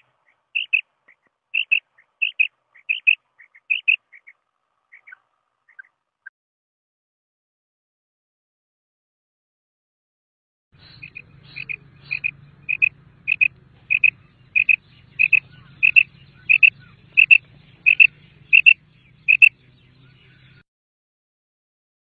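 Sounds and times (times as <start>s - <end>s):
quail calling: 0.0s - 5.9s, 10.8s - 20.6s.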